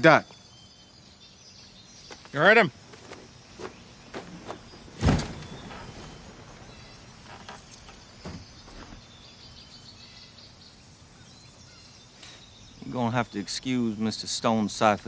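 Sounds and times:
birds chirping: 0.0s - 15.0s
insects chirping: 0.0s - 15.0s
loud thump: 4.2s - 6.8s.

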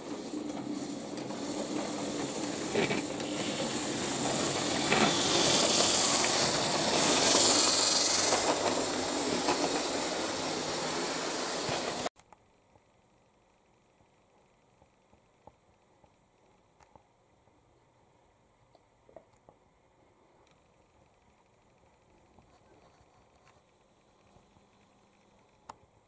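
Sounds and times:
wheels rumbling on rails: 0.0s - 12.1s
model train motor hum: 0.3s - 12.1s.

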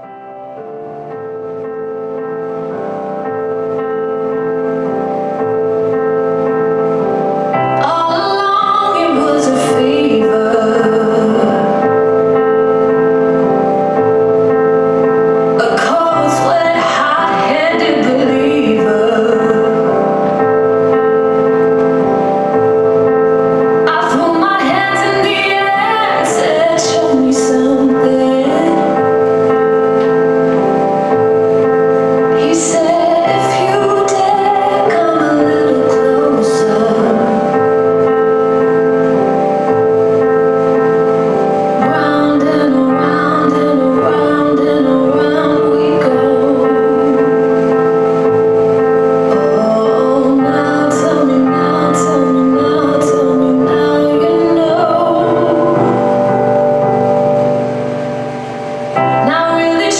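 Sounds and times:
woman singing: 7.7s - 12.2s, 15.5s - 20.3s, 23.8s - 29.2s, 32.2s - 37.8s, 41.8s - 47.7s, 49.3s - 56.2s, 59.1s - 59.9s.

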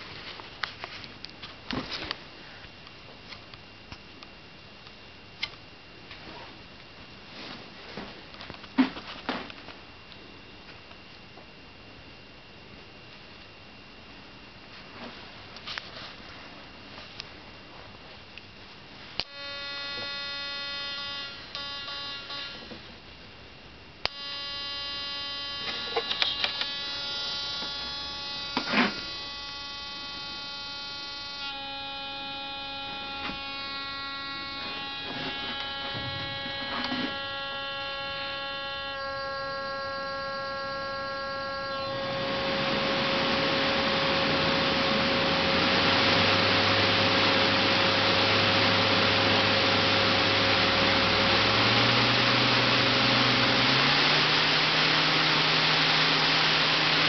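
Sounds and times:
electric motor whine: 19.2s - 23.0s, 24.0s - 57.0s
motor low hum: 19.2s - 57.0s.

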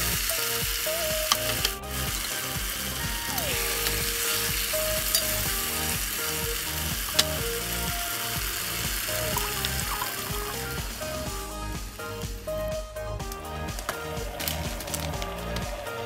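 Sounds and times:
food sizzling in a pot: 0.0s - 11.3s
background music with a beat: 0.0s - 16.0s.

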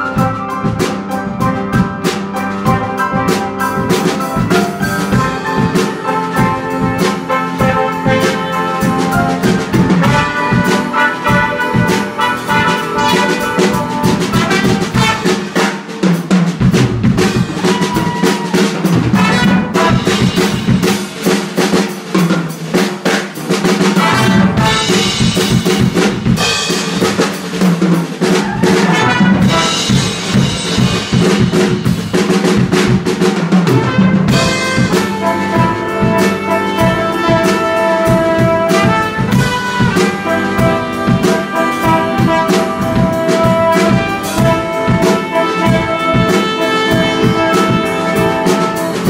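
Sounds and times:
trumpet: 0.0s - 16.2s, 16.8s - 21.8s, 23.0s - 27.6s, 28.2s - 49.0s
drum kit playing: 0.0s - 49.0s
trombone: 0.0s - 49.0s.

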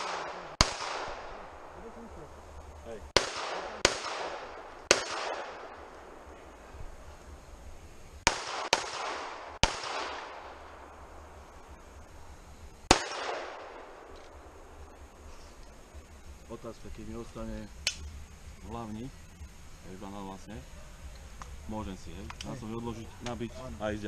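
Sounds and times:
pistol shots echoing: 0.0s - 1.8s, 3.2s - 6.3s, 8.2s - 10.9s, 12.9s - 14.4s.

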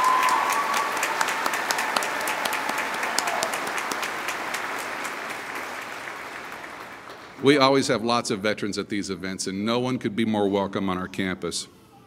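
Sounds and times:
large audience applauding: 0.0s - 7.6s.

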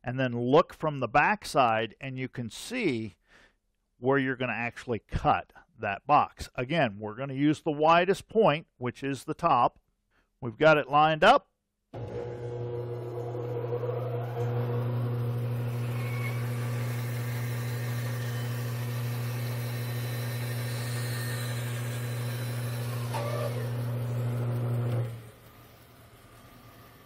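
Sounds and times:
bandsaw motor hum: 12.0s - 27.0s
saw blade rasping through wood: 15.7s - 23.9s.

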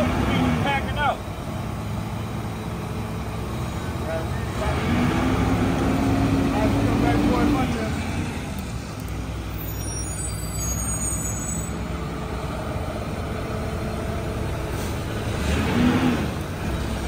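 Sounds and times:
garbage truck diesel engine running: 0.0s - 17.0s
air brakes hissing: 9.5s - 11.8s.

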